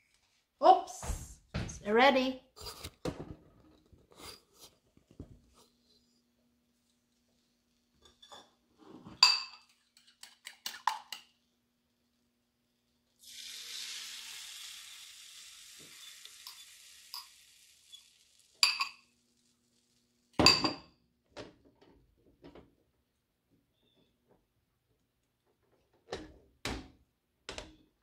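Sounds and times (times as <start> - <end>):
batter sizzling in frying pan: 12.6 - 20.4.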